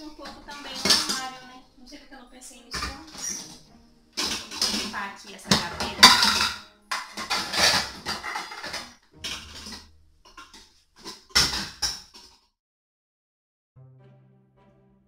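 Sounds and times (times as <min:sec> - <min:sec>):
metal pots and pans clattering: 0:00.0 - 0:01.7, 0:02.7 - 0:12.4.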